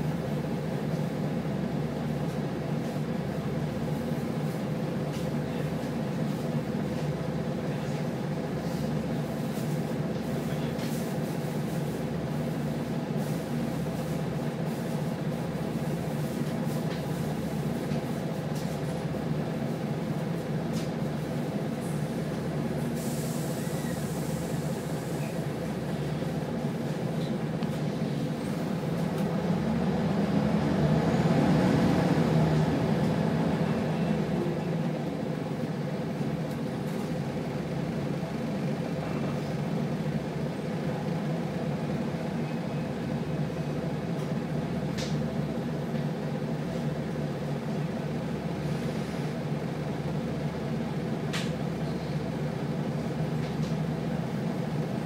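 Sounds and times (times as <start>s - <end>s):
bus diesel engine idling: 0.0s - 55.0s
brief air hiss: 23.0s - 25.4s.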